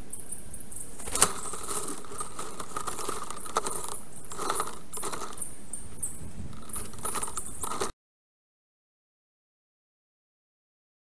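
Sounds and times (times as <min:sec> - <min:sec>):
small clicks and rattles: 0:01.0 - 0:05.5, 0:06.4 - 0:07.9.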